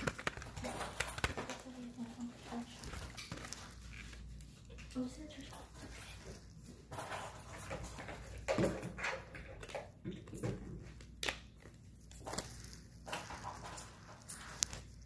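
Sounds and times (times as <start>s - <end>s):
rustling: 0.0s - 8.5s, 11.7s - 15.0s.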